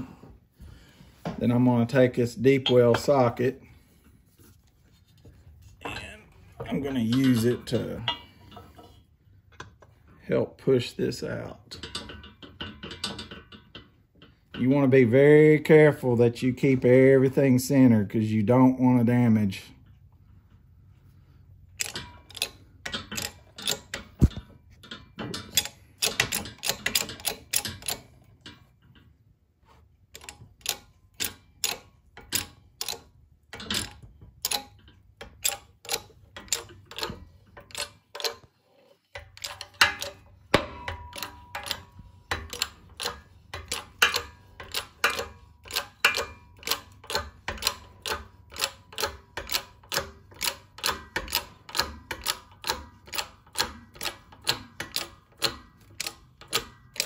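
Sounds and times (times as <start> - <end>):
hydraulic press clicking: 21.8 - 28.2, 30.2 - 38.5, 39.2 - 57.0.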